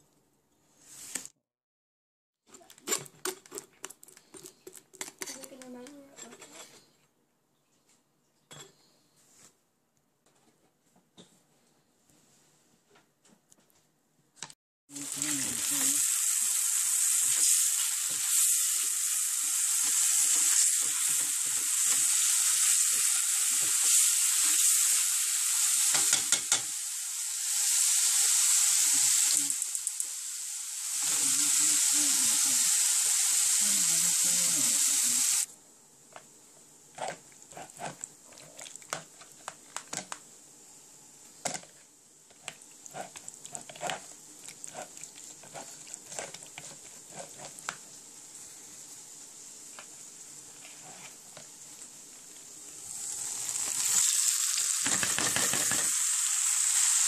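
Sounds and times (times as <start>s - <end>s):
garlic sizzling in hot oil: 14.9s - 35.5s, 42.4s - 57.0s
spatula stirring pan: 15.0s - 25.0s, 36.9s - 39.6s, 42.3s - 48.0s, 49.8s - 51.6s.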